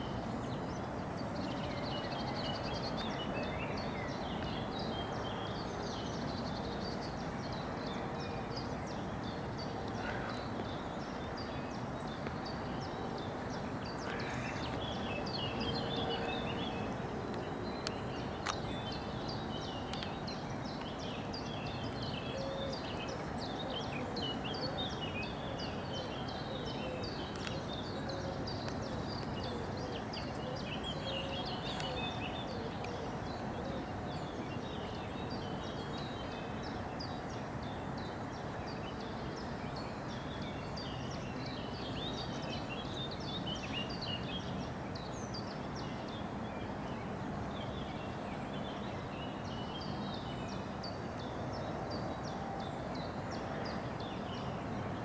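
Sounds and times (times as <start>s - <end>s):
birds chirping and twittering: 0.0s - 55.0s.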